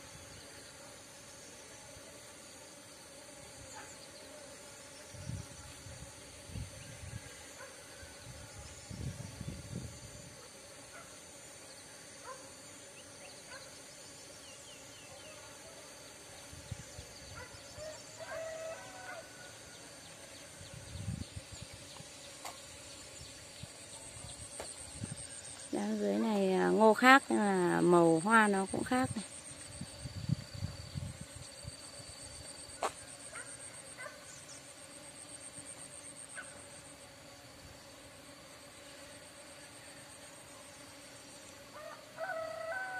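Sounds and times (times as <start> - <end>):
fowl-like call: 17.8 - 19.6, 41.7 - 42.9.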